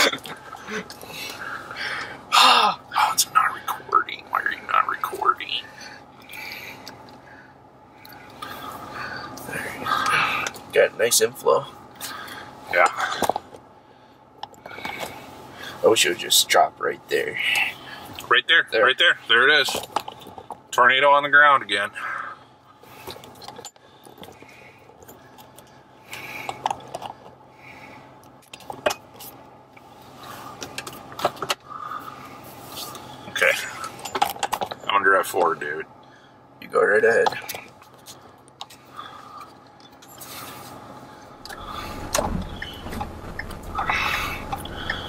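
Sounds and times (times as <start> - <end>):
low steady hum: 0.0 - 45.0
low rumble of car moving: 38.8 - 45.0
things handled inside car: 39.9 - 45.0.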